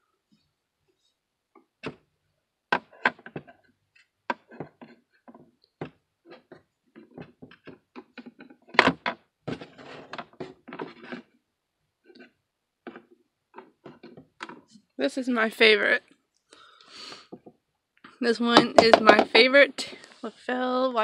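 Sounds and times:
figures tapping and clacking: 18.4 - 19.6.

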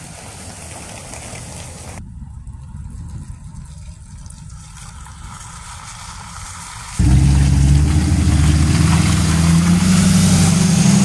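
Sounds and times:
low wind rumble on microphone: 2.0 - 9.4
car engines: 4.9 - 11.0.

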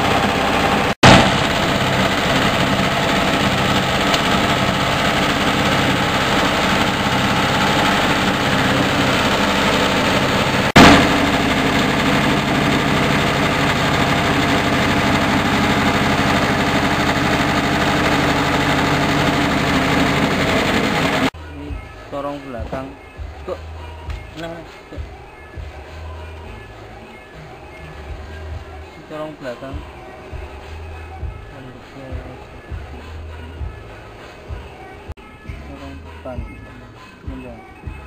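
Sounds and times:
diesel engine running a mill: 0.0 - 21.4.

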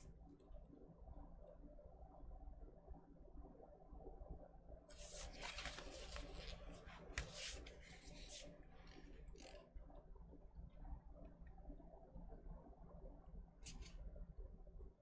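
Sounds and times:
cardboard record jacket rustling: 5.0 - 8.4.

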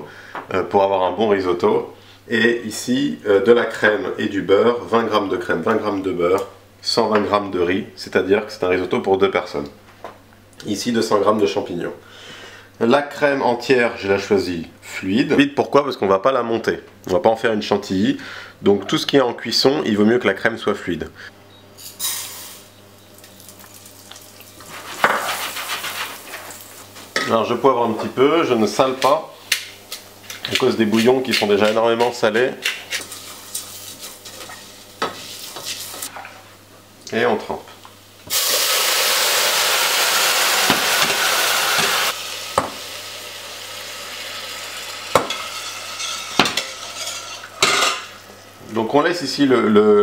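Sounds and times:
frying and stirring: 21.8 - 28.2, 28.9 - 36.6, 38.3 - 48.4
stock sizzling in a pan: 22.0 - 27.0, 32.8 - 36.1, 38.3 - 47.6
rice hissing in hot oil: 24.6 - 26.6, 38.3 - 47.0
spatula scraping saucepan: 32.6 - 36.2, 45.4 - 48.0.

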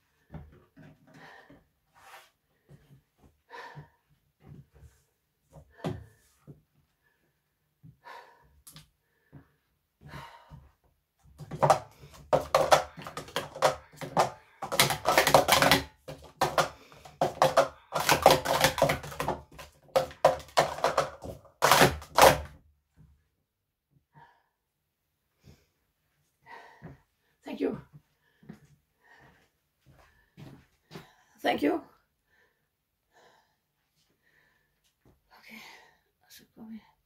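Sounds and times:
plastic cups clattering: 11.4 - 22.5.

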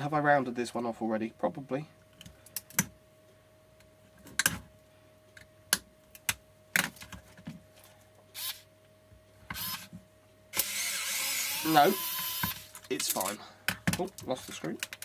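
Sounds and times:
electric screwdriver whirring: 8.4 - 8.6, 9.6 - 9.9, 10.5 - 12.7.

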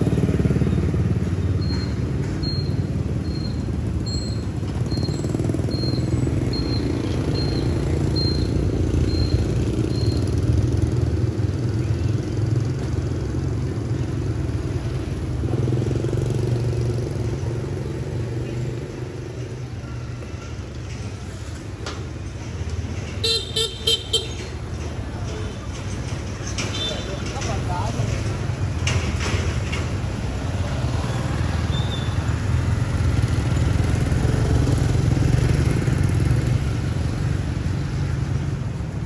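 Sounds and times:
motorbike engines passing: 0.0 - 39.0
short high beeps: 1.6 - 10.3.

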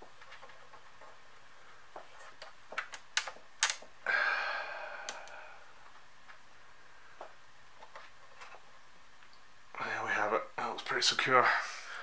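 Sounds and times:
man exhaling a sigh: 4.0 - 5.6.

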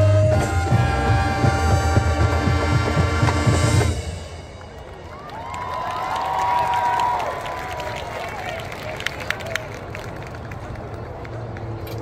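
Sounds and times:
marching band sustained chord: 0.0 - 5.0.

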